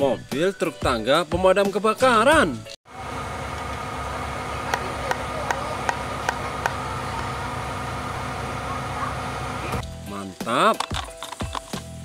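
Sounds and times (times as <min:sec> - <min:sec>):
truck engine and hydraulics whining: 0:02.9 - 0:09.8.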